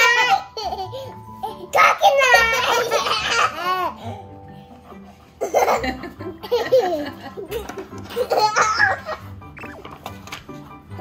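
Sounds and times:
young child laughing: 0.0 - 3.9, 5.4 - 9.2.

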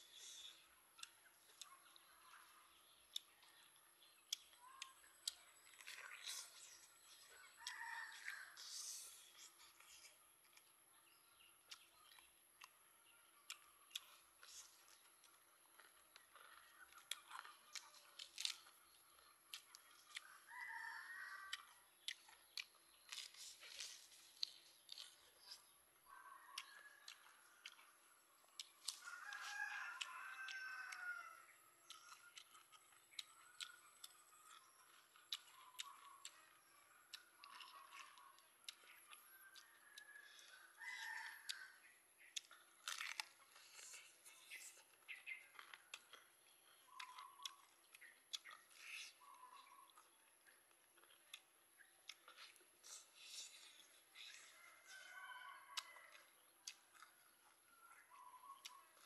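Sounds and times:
chewing crispy food: 0.0 - 59.0
rooster crowing: 20.4 - 21.7, 29.0 - 31.5, 39.4 - 41.8, 54.3 - 56.3
wet mouth clicks: 42.2 - 50.6.

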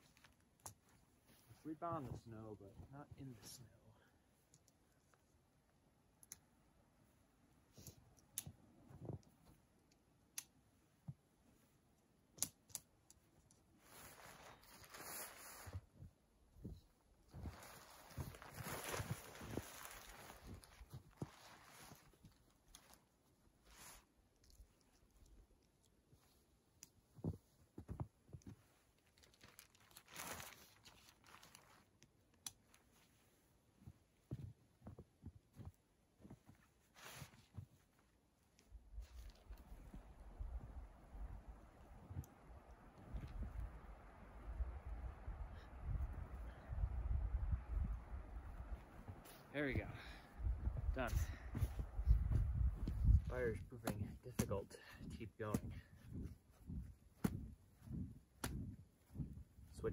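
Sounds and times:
footsteps in snow: 0.0 - 3.8, 13.8 - 24.2, 27.0 - 31.9, 32.8 - 44.6, 47.7 - 59.9
nylon rustling: 13.7 - 16.2, 17.2 - 44.5.

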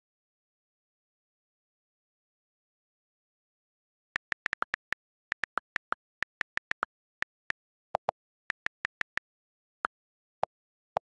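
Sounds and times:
keyboard key clicks: 4.2 - 9.2.

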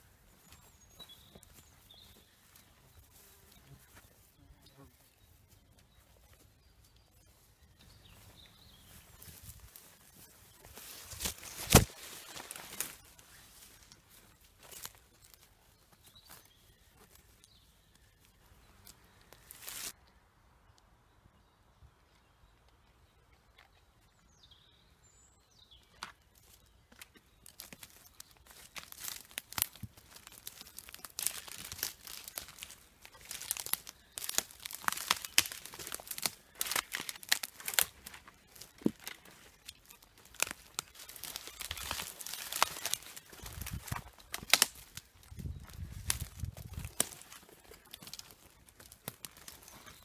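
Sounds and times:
brush rustling: 0.0 - 20.0, 27.4 - 50.0
footsteps through undergrowth: 0.0 - 20.0, 25.8 - 50.0
twigs crackling and snapping: 6.8 - 20.0, 26.0 - 50.0.

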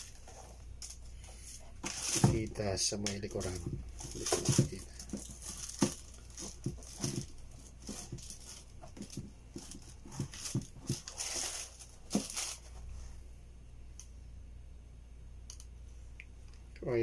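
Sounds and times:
tissue paper rustling: 0.0 - 13.2.

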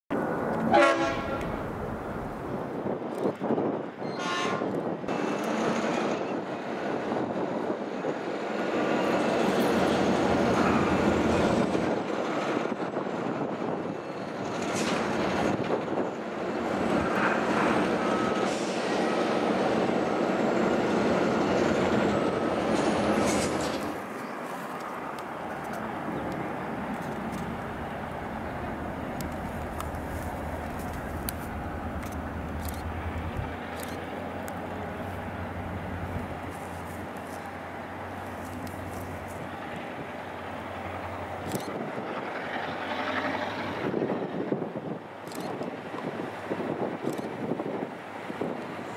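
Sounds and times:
locomotive engine rumble: 0.1 - 2.8, 16.4 - 44.6
train horn: 0.7 - 1.6, 4.0 - 4.8
wagons rolling on rails: 20.8 - 37.6.

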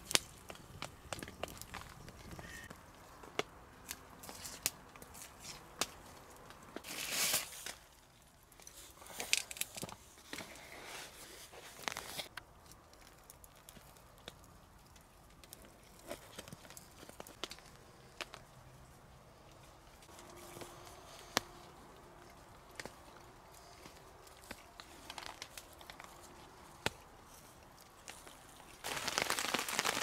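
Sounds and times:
paper or bread tearing: 6.8 - 7.8.

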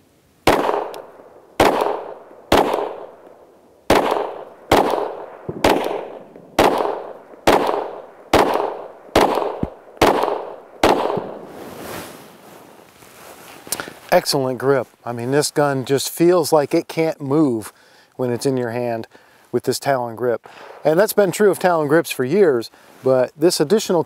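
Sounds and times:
pistol shots echoing: 0.4 - 11.5.

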